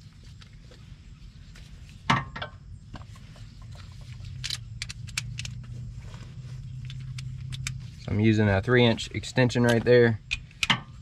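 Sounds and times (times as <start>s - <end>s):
low steady hum: 0.0s - 11.0s
ratchet clicking on a bolt: 9.6s - 11.0s.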